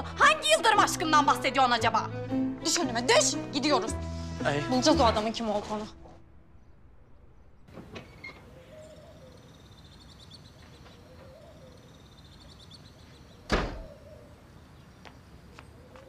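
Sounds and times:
bird calls: 6.6 - 16.0
heavy wooden door thud: 13.5 - 13.9.

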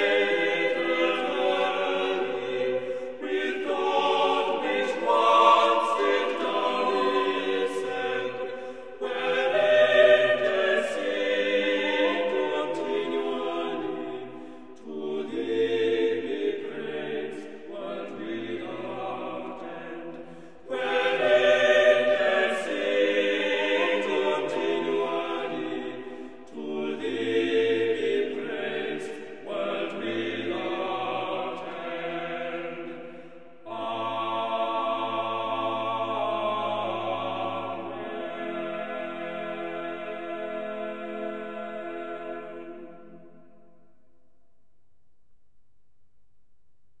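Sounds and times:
choir singing: 0.0 - 44.0.

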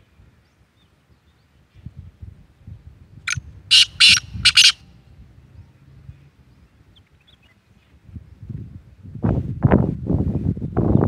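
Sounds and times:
francolin calling: 3.3 - 4.8.

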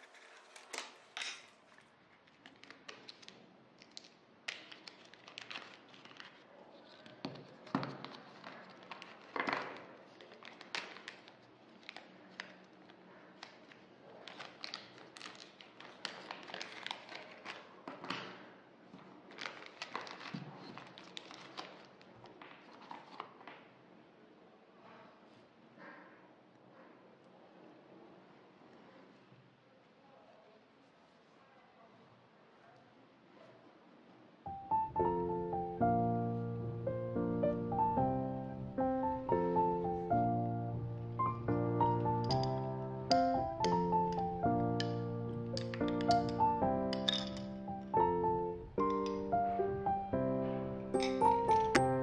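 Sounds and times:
plastic bag crinkling: 0.0 - 17.8, 19.3 - 22.1, 41.9 - 48.0.

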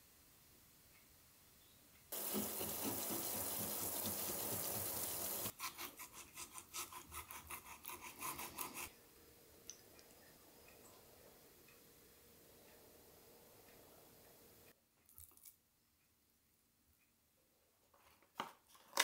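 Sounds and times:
knife scraping fish scales: 2.2 - 8.9.

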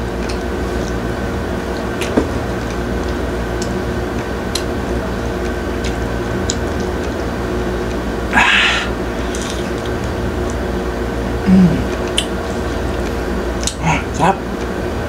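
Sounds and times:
low electrical hum: 0.0 - 15.0
man chewing: 0.0 - 15.0.

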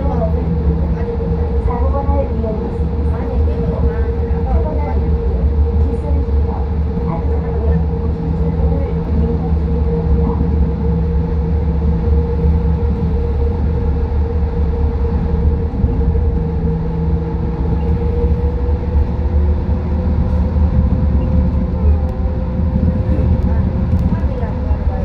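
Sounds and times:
train rumbling through tunnel: 0.0 - 25.0.

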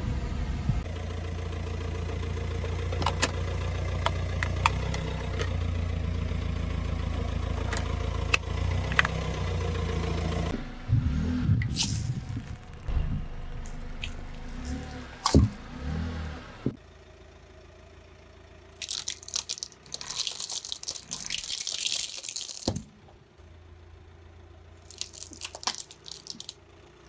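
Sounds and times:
car engine rumble: 0.0 - 27.0
tyre crushing pine cones: 11.8 - 16.0, 18.8 - 23.0, 24.8 - 26.6.

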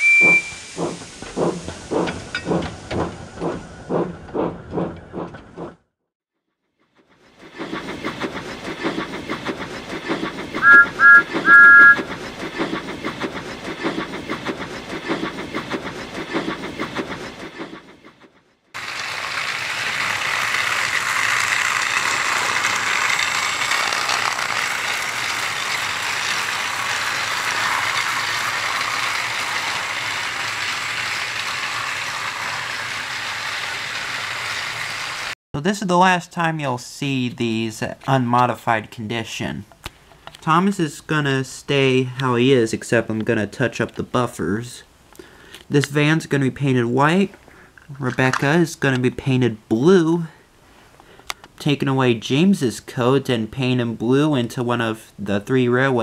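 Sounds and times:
high-pitched toy train toots: 0.0 - 0.7, 10.6 - 12.0
toy train motor whirring: 8.1 - 12.5, 18.8 - 35.4
wheels clicking over track joints: 18.8 - 35.3.

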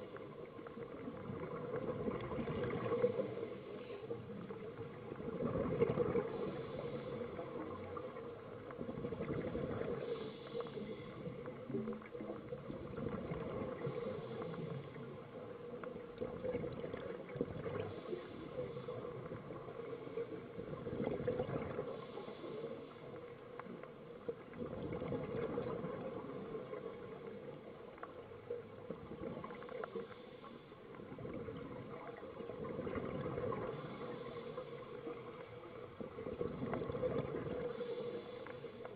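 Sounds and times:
bubbles gurgling underwater: 0.0 - 10.0, 11.2 - 22.1, 23.6 - 30.0, 31.0 - 38.0
breathing through a regulator: 3.2 - 4.7, 6.0 - 8.1, 9.5 - 11.7, 13.6 - 15.3, 17.6 - 20.5, 21.6 - 23.5, 29.5 - 31.0, 33.6 - 35.4, 37.3 - 38.9.

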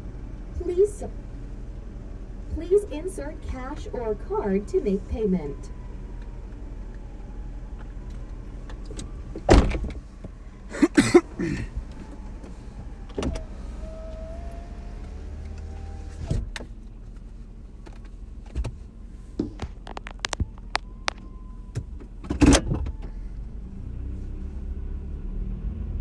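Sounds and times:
low steady hum: 0.0 - 24.6
loud knocks and clunks: 9.4 - 10.0
power window motor running: 11.9 - 16.5.

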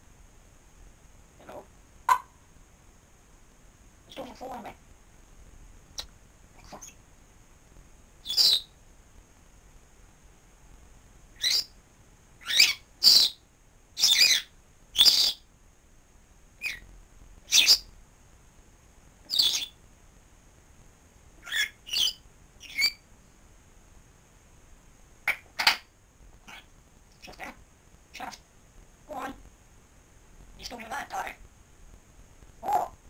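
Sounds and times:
parrot whistling squawks: 12.4 - 13.4.

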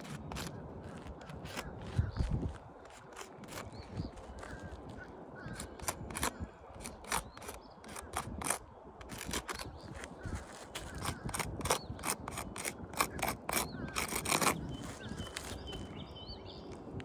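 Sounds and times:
tools scraping roof shingles: 5.6 - 10.1, 11.0 - 15.6.

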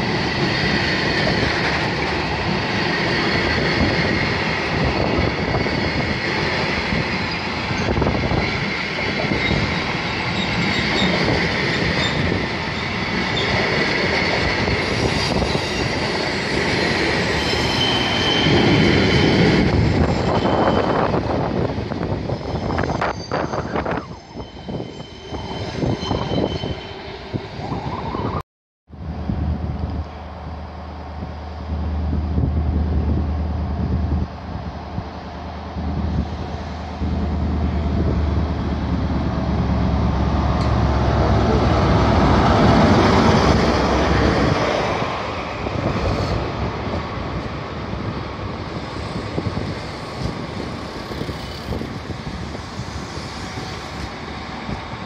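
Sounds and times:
train wheels rumbling on rails: 0.0 - 28.4, 29.0 - 55.0
high wheel squeal: 7.1 - 13.6, 14.6 - 28.4.

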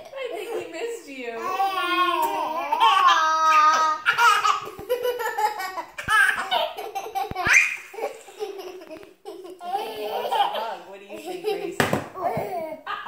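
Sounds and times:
baby laughing: 1.4 - 13.0
girl laughing: 3.8 - 13.0.

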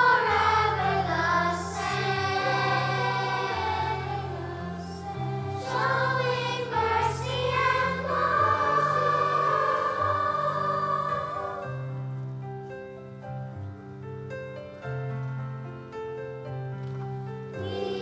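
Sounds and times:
children's choir singing: 0.0 - 12.0, 17.6 - 18.0.

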